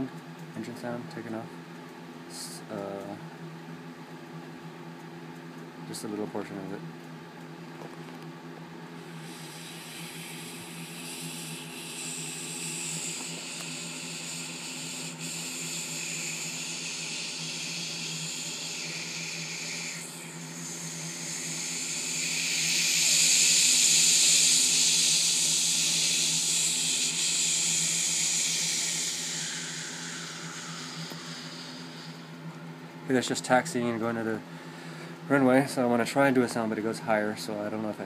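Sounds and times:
man imitating jet engine: 9.2 - 32.4.

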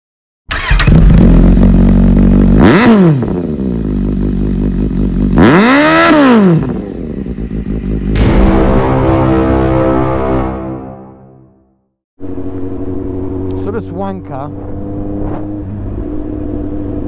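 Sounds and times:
motorcycle engine revving: 0.5 - 10.9, 12.2 - 17.0
sudden burst: 8.1 - 11.7.

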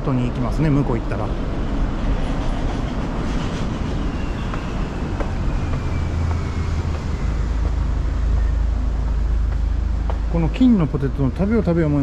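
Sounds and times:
road traffic: 0.0 - 12.0
faint footsteps on tiled stairs: 4.4 - 10.8.

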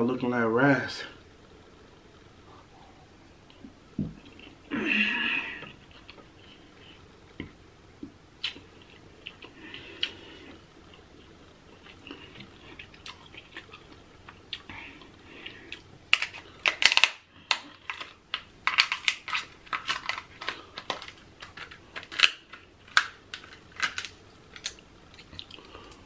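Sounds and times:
scissors cracking crab shell: 16.1 - 24.8.

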